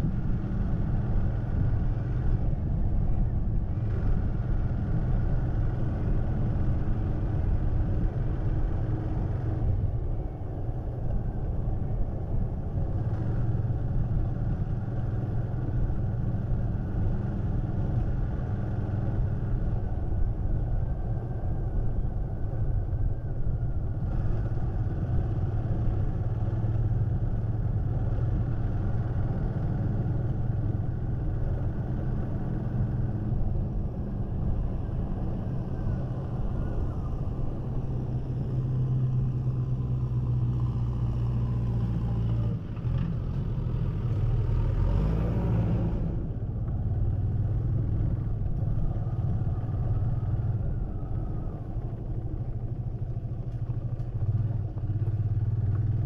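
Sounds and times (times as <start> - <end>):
road and wind noise: 0.0 - 56.0
motorcycle engine running: 46.0 - 56.0.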